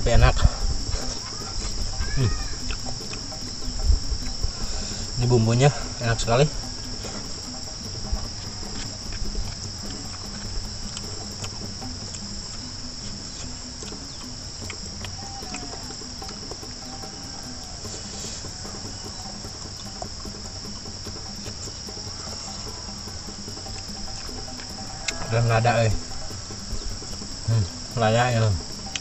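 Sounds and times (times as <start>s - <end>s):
insect chorus: 0.0s - 29.0s
person eating by hand: 0.8s - 5.2s, 6.6s - 25.3s.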